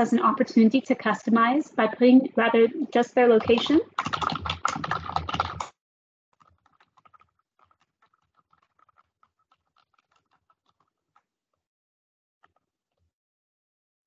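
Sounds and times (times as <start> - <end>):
faint keyboard typing: 3.0 - 5.8, 6.4 - 11.2.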